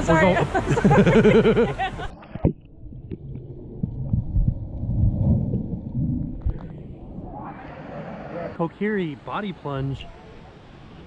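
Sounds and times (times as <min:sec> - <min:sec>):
person laughing: 0:00.4 - 0:02.1
muffled underwater water slosh: 0:02.1 - 0:08.6.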